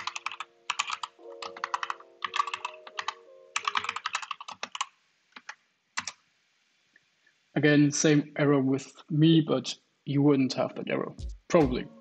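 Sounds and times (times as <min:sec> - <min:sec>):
typing on computer keyboard: 0:00.0 - 0:06.2.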